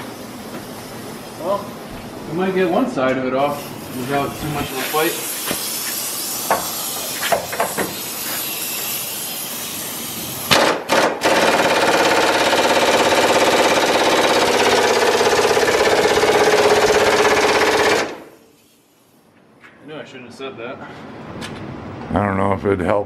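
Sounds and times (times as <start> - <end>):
air hiss with clicks: 4.0 - 8.9
impact wrench hammering: 6.5 - 8.0, 10.5 - 18.4.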